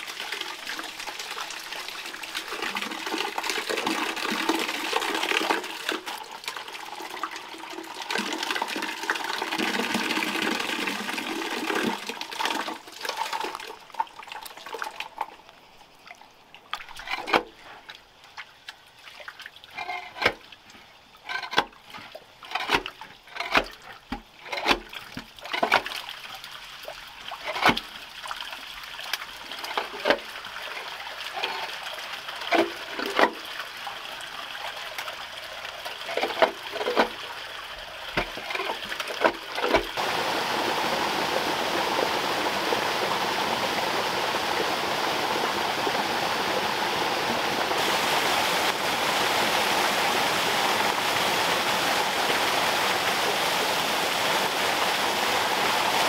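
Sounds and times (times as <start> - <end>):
water pouring through drain: 0.0 - 56.0.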